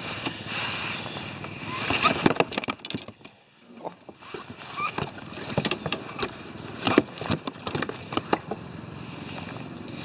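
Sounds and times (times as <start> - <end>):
knocks and clicks on plastic kayak: 1.9 - 4.2, 4.8 - 8.6.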